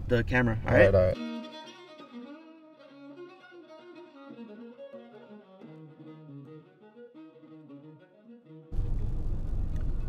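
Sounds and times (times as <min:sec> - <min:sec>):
slow bowed string music: 0:01.2 - 0:09.1.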